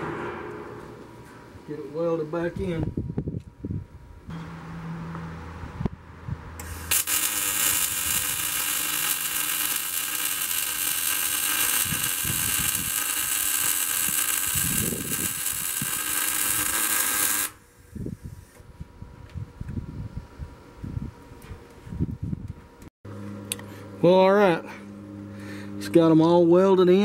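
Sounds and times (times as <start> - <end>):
arc welder hissing and crackling: 6.6 - 18.6.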